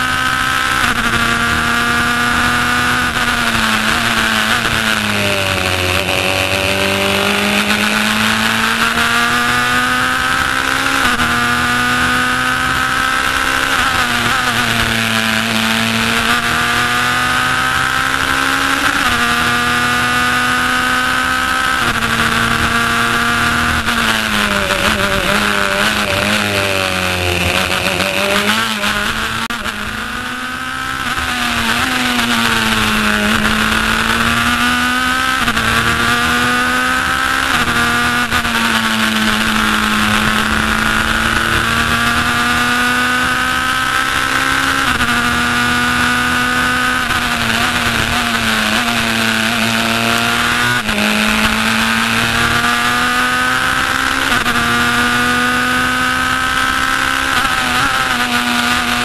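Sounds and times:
race car engine shifting gears: 0.0 - 59.0.

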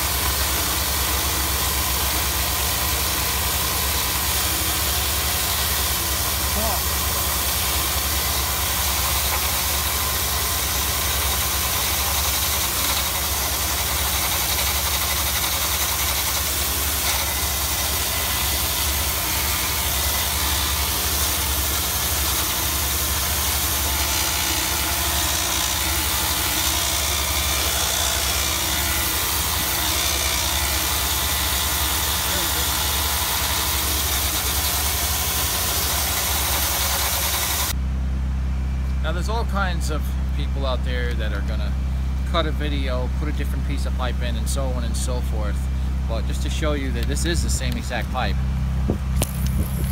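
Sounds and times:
tool scouring rust in pipe: 0.0 - 37.7
drain-cleaning machine running: 0.0 - 37.8.

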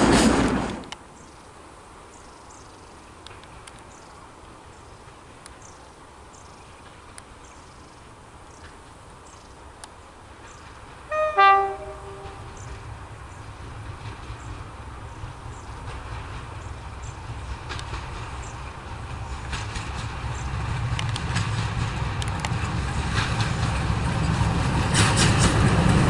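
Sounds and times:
passing train rumble: 0.0 - 26.0
faint birdsong: 1.1 - 17.3
locomotive engine rumble: 3.1 - 26.0
two-tone locomotive horn: 11.1 - 12.7.

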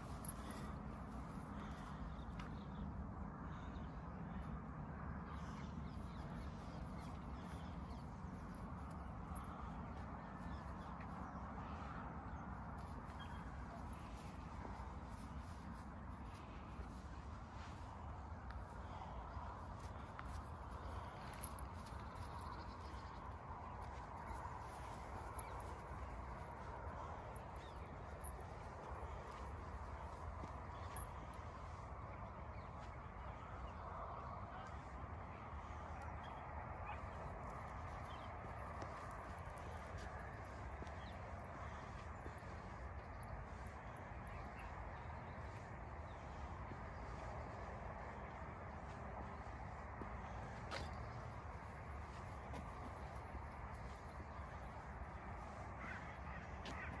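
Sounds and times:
low outdoor rumble: 0.0 - 57.0
birds calling: 50.2 - 57.0.

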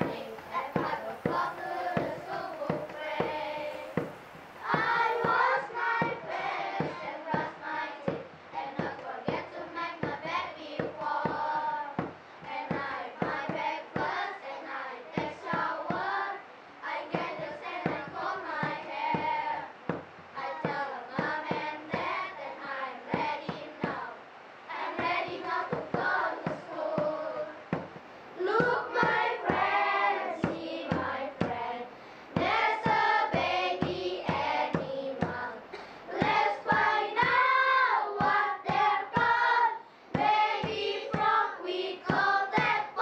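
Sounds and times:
children singing: 0.0 - 27.8, 28.4 - 43.0.

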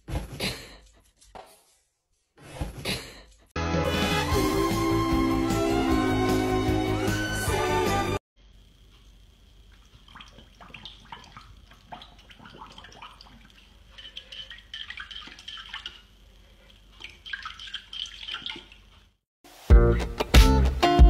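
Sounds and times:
puppy splashing water in bowl: 9.7 - 19.1.

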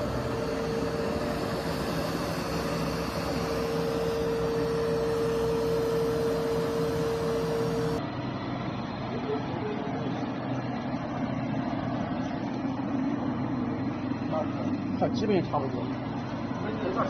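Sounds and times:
rush of air: 0.0 - 7.9
carpet vacuum motor humming: 0.0 - 8.0.

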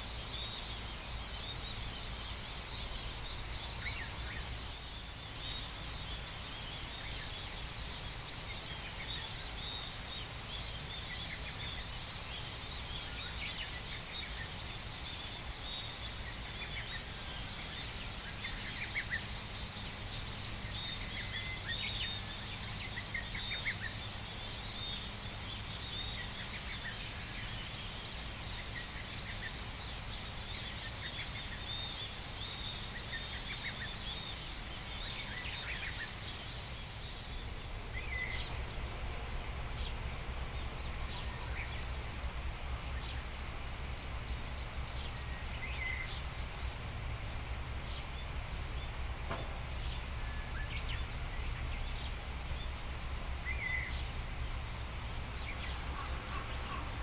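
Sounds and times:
birds calling: 0.0 - 57.0
low background rumble: 33.7 - 57.0.

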